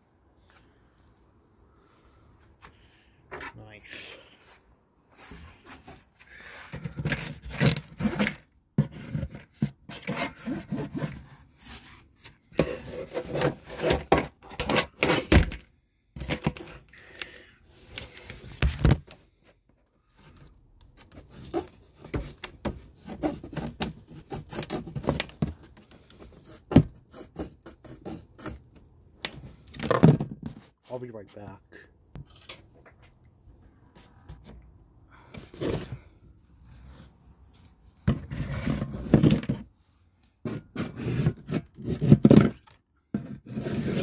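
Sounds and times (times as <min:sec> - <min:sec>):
cardboard rubbing and scraping: 0:07.0 - 0:15.4, 0:21.0 - 0:28.6, 0:35.5 - 0:39.7, 0:40.4 - 0:44.0.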